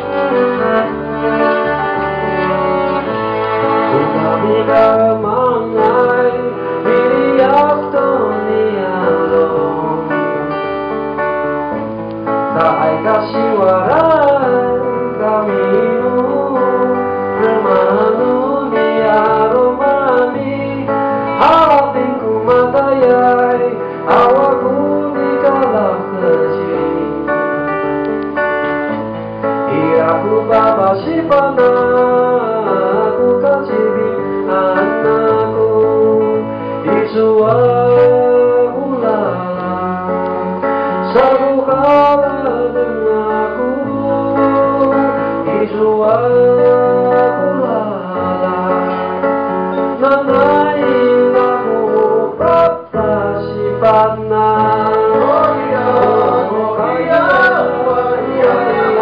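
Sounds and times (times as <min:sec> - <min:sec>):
man singing lead: 0:00.0 - 0:59.0
strummed acoustic guitar: 0:00.0 - 0:59.0
men singing backing vocals: 0:50.0 - 0:59.0.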